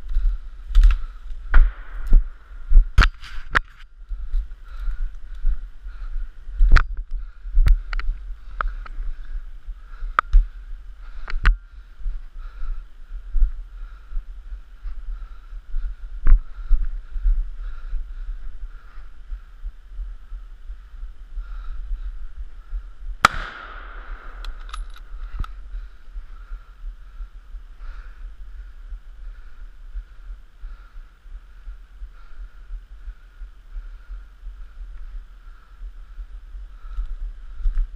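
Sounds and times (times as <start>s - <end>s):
low rumble of camera movement: 0.0s - 37.9s
rifle shot: 1.5s - 2.4s, 23.2s - 25.2s
light metallic clicks: 23.2s - 25.6s.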